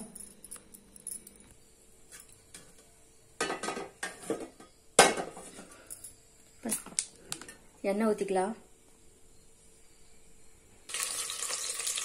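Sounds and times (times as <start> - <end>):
metal pots clinking: 3.4 - 5.5.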